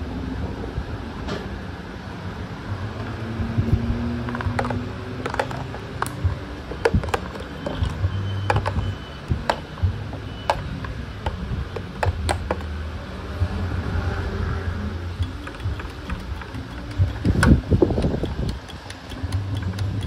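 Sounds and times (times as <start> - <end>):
plastic parts clicking and knocking: 4.2 - 9.7, 10.4 - 12.7, 15.2 - 20.0.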